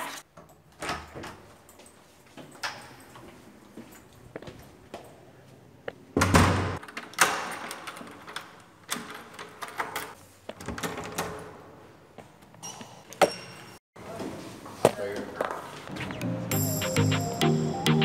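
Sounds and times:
door thudding shut: 6.2s - 6.8s.

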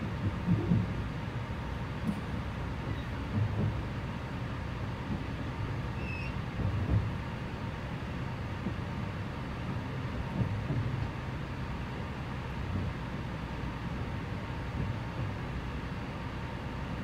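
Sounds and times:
train cabin rumble: 0.0s - 17.0s
faint squeak: 6.0s - 6.4s.

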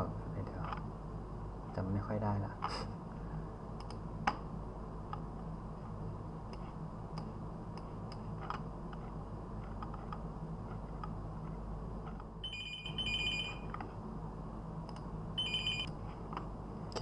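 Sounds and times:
steady low hum: 0.0s - 17.0s
electronic telephone ringing: 12.4s - 13.7s, 15.4s - 15.9s.

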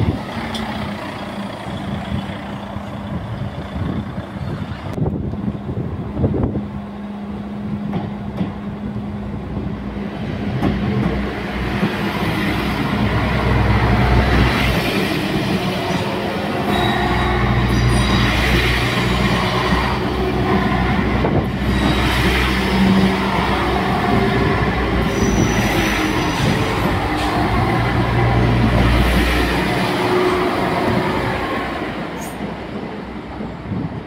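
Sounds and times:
diesel train engine running: 0.0s - 32.8s
train wheels rolling over rails: 10.0s - 34.0s
high wheel squeals: 15.9s - 20.1s, 24.9s - 27.9s.

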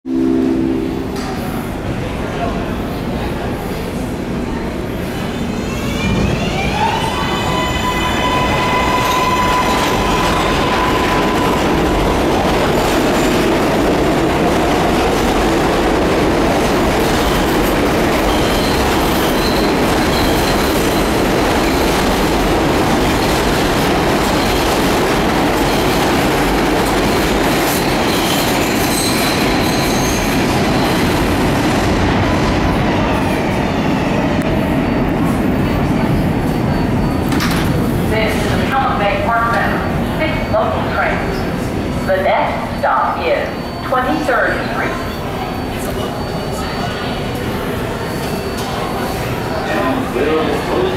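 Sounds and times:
steel wheels rumbling on rail: 1.2s - 42.8s
high wheel squeals: 18.2s - 21.2s.

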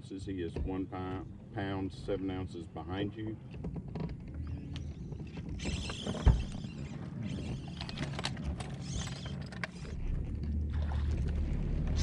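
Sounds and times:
low rumble: 9.8s - 12.0s.

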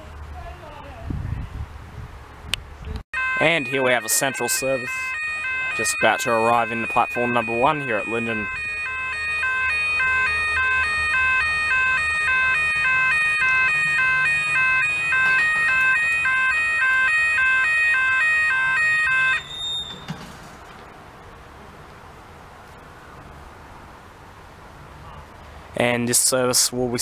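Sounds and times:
electronic siren stepping tones: 3.2s - 20.1s.

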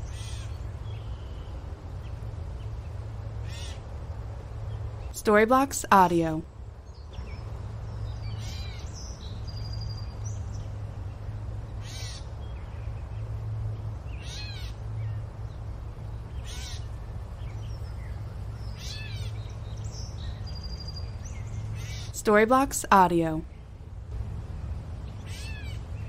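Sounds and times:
cawing calls: 0.0s - 0.6s, 3.4s - 3.8s, 11.8s - 12.3s, 14.1s - 14.8s, 16.4s - 16.9s, 25.2s - 25.9s.

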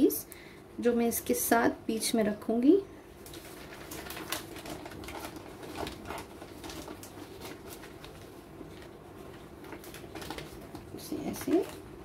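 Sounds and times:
paper crinkling and rustling: 3.2s - 11.9s.

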